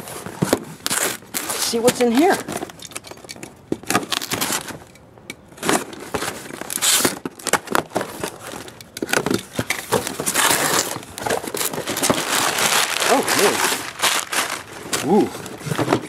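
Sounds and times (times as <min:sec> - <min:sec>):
cardboard flaps crinkling open: 0:05.6 - 0:16.0
knife slitting box tape: 0:05.6 - 0:16.0.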